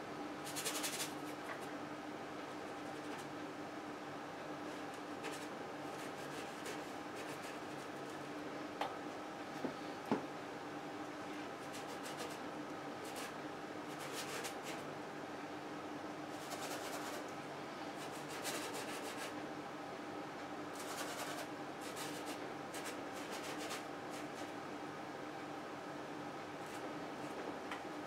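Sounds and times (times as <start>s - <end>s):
steady low hum: 0.0s - 28.0s
paintbrush scratching on canvas: 5.2s - 7.9s, 16.4s - 17.3s, 18.0s - 19.4s.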